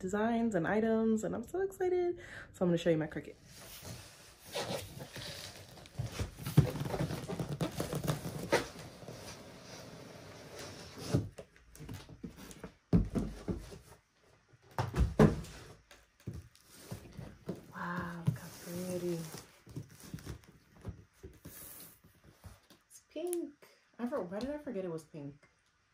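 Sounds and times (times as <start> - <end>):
cardboard flaps rustling: 3.8 - 14.0, 14.6 - 22.8.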